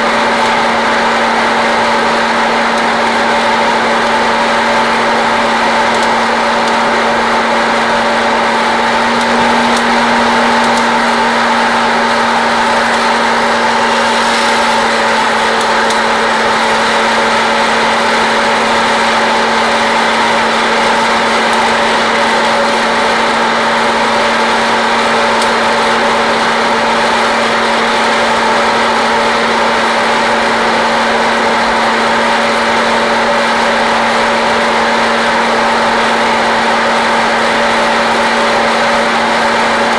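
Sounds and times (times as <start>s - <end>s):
fan motor running: 0.0s - 39.9s
coffee beans cracking: 12.3s - 17.4s.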